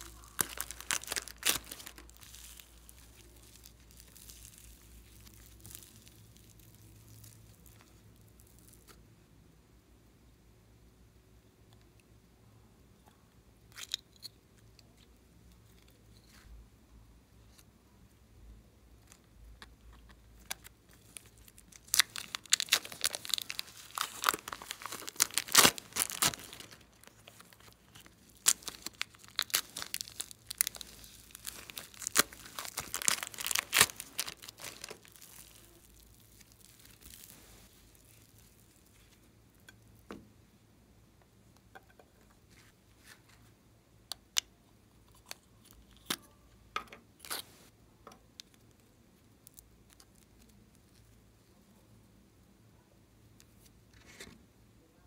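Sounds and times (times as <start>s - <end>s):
plastic bag crinkling: 0.0s - 8.8s, 20.9s - 39.2s
modelling clay crackling and tearing: 0.0s - 9.0s, 19.0s - 39.7s, 48.4s - 51.8s.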